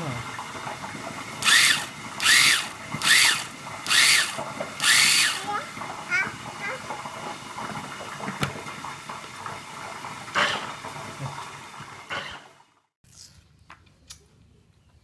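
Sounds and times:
blender running: 1.4 - 5.9.

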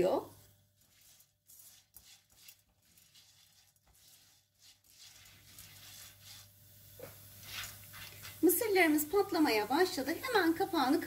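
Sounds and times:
spatula scraping pan: 0.7 - 8.7
oil sizzling: 0.7 - 11.0.

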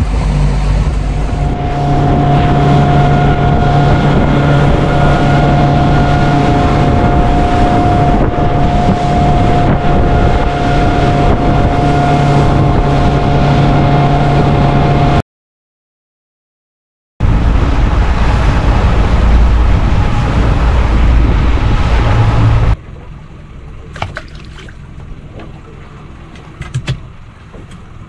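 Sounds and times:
motorboat engine drone: 0.0 - 15.2, 17.2 - 28.0
water rushing past hull: 0.0 - 15.2, 17.2 - 28.0
wind buffeting microphone: 0.0 - 15.2, 17.2 - 22.8.

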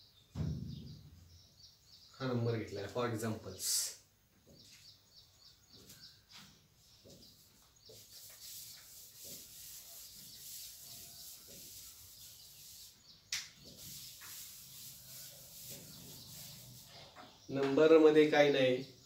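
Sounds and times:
duster wiping a whiteboard: 7.3 - 17.0.

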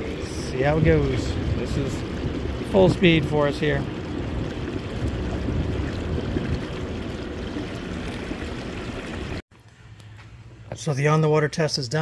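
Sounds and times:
water rushing along hull: 0.0 - 9.4
wind noise: 0.0 - 9.4.

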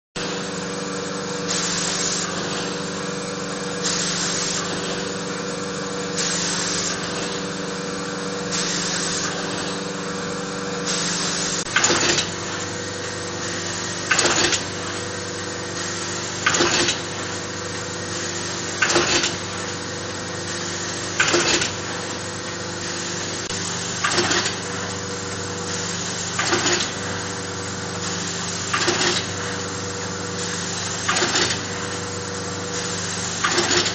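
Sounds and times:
machine clatter: 0.2 - 33.9
machine humming: 0.2 - 33.9
short machine hiss: 1.4 - 2.9, 3.7 - 5.3, 6.1 - 7.5, 8.5 - 9.9, 10.8 - 12.4.

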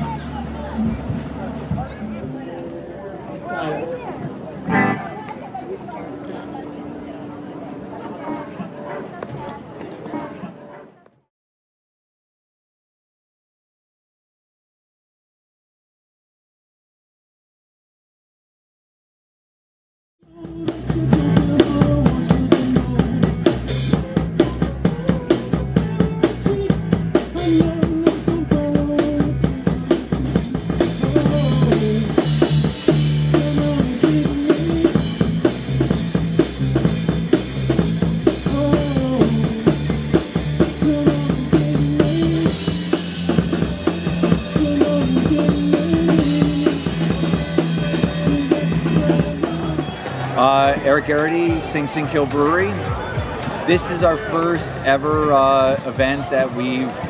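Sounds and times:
live rock band playing: 4.7 - 5.3, 20.3 - 54.2.

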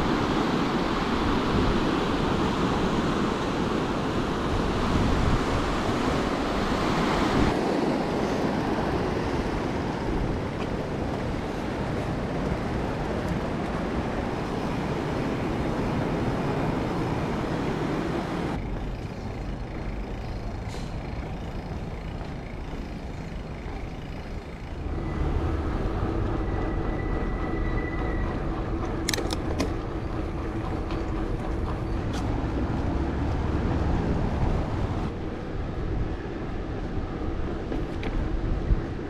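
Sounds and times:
wind rushing over microphone: 0.0 - 18.6, 31.4 - 39.0
bicycle tyre and road noise: 0.0 - 39.0
sharp clicks: 28.8 - 29.8.

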